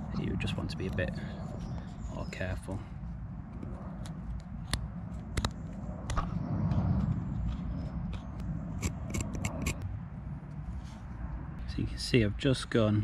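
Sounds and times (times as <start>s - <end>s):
low rumble: 2.8s - 12.0s
knife cutting wood: 7.5s - 9.8s.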